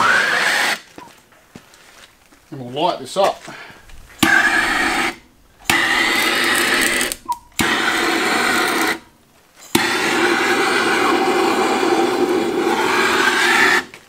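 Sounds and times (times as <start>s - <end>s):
gas torch roaring hiss: 0.0s - 1.0s, 3.7s - 14.0s
torch igniter click: 4.2s - 9.0s.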